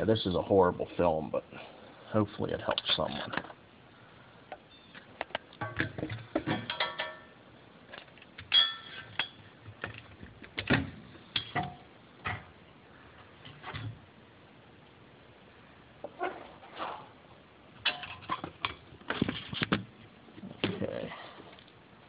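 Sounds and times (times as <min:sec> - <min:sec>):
metal tools clinking: 0:06.6 - 0:07.3, 0:08.5 - 0:09.4.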